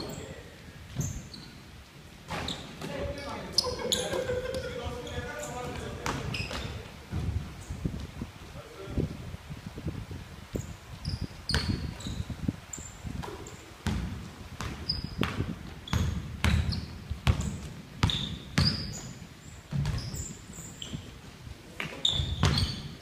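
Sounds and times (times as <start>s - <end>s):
sneakers squeaking on floor: 0.0s - 1.7s, 2.3s - 7.8s, 10.6s - 23.0s
basketball bouncing on wooden floor: 13.2s - 19.0s, 19.7s - 20.2s, 22.1s - 22.9s.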